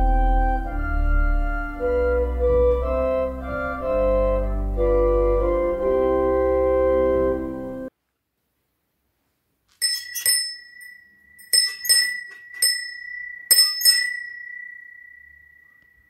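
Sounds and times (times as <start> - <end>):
small bell ringing: 9.8 - 16.0.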